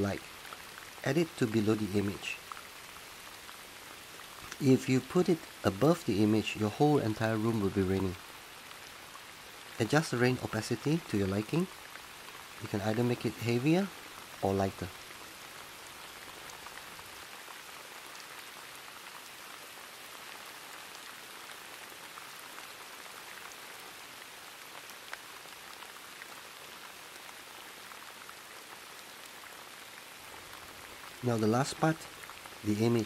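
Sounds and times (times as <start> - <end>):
raindrop ticks: 0.0 - 17.6
steady rain hiss: 0.0 - 33.0.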